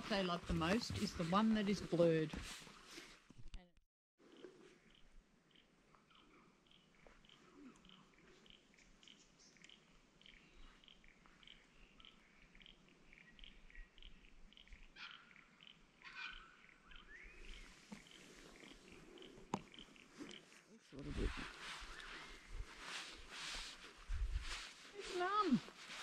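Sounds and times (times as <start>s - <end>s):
bird chirps: 4.4s - 20.6s, 21.6s - 22.6s.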